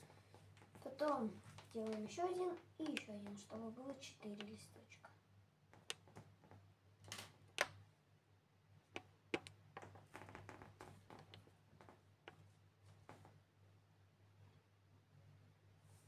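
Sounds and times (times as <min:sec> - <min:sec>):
faint low hum: 0:00.0 - 0:16.0
fingers tapping plasticine: 0:01.8 - 0:03.5, 0:05.7 - 0:06.6, 0:08.9 - 0:10.1.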